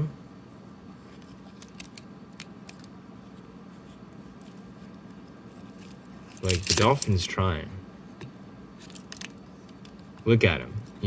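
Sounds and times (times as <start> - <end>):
steady low hum: 0.0 - 11.0
keys clicking on a keychain: 6.3 - 7.1.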